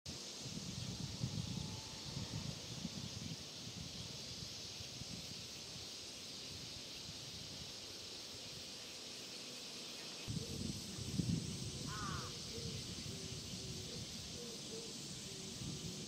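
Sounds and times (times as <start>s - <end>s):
insects hissing: 0.1s - 16.0s.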